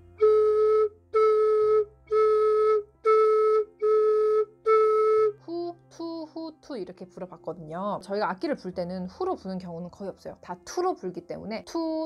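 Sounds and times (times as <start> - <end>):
flute headjoint notes: 0.0 - 6.2.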